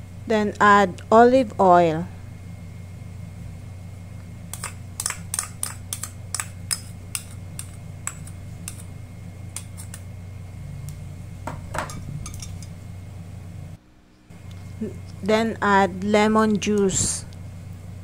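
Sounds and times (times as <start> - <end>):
steady low hum: 0.0 - 18.0
metal spoon clinking on bowls: 11.8 - 12.8.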